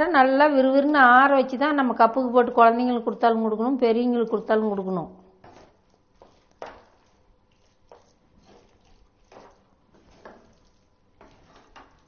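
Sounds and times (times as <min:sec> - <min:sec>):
spatula stirring wet rice: 0:04.3 - 0:12.0.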